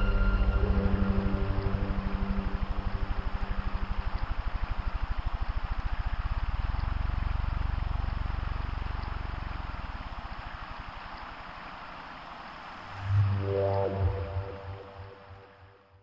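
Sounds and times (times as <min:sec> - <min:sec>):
low pulsing throb: 0:00.0 - 0:10.3, 0:12.9 - 0:15.7.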